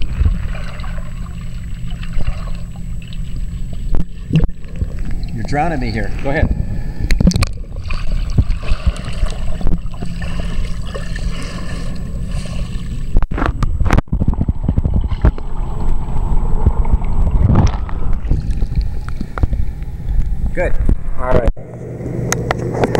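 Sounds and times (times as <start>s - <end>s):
swimmer splashing: 0.0s - 13.5s
water sloshing and gurgling: 0.0s - 21.5s.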